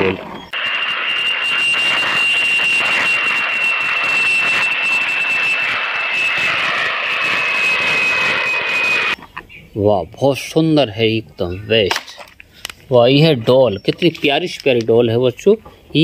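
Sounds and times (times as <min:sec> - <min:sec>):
jet engines whining: 0:00.0 - 0:09.2
rushing noise: 0:00.6 - 0:09.2.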